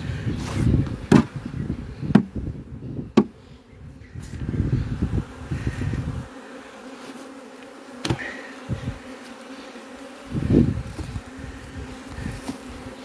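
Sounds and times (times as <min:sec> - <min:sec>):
honeybees buzzing: 0:00.0 - 0:13.0
knocks on hive boxes: 0:01.1 - 0:01.4, 0:02.1 - 0:02.4, 0:03.1 - 0:03.4, 0:08.0 - 0:08.3.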